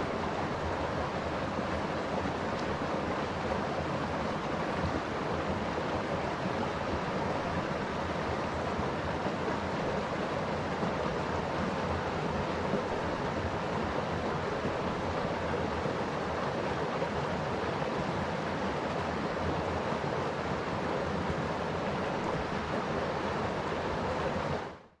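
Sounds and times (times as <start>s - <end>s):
stream flowing over stones: 0.0s - 24.8s.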